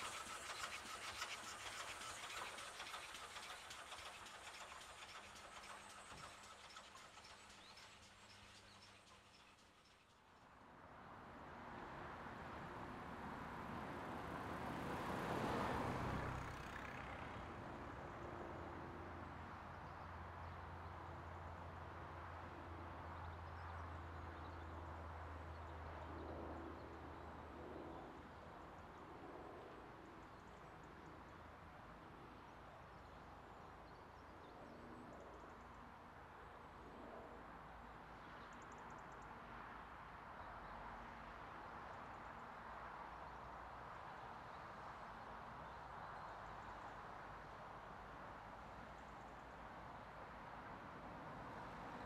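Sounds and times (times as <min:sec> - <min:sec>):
diesel engine low drone: 0:00.0 - 0:10.1.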